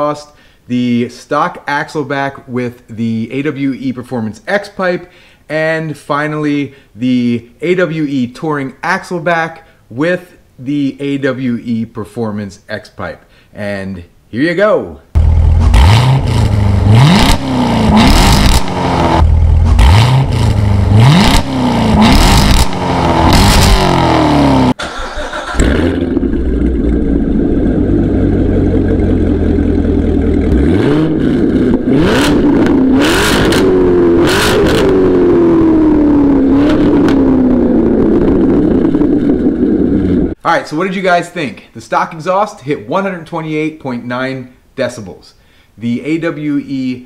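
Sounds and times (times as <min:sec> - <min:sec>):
car engine idling: 0:15.2 - 0:21.1, 0:24.8 - 0:40.4
car engine revving: 0:15.2 - 0:40.4.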